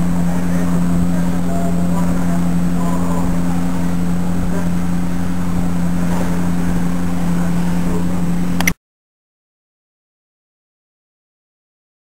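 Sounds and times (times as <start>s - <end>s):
low motor drone: 0.0s - 8.8s.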